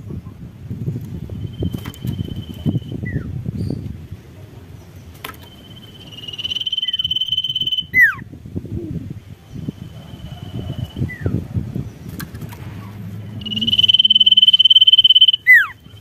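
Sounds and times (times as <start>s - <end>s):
bird whistling call: 5.5s - 8.2s, 13.4s - 16.0s
low rumble: 8.3s - 16.0s.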